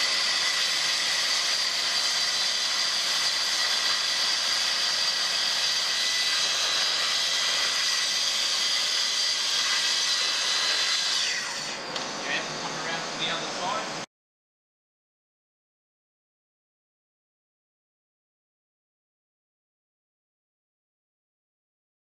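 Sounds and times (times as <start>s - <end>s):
track saw cutting plywood: 0.0s - 13.9s
dust extraction through hose: 0.0s - 14.1s.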